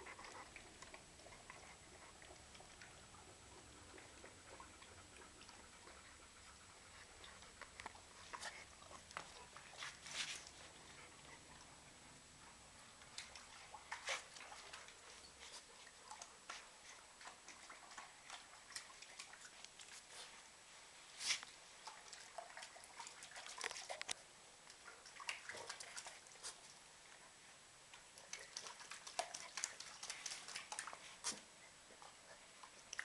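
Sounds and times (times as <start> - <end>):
puppy eating from metal bowl: 28.0 - 31.1.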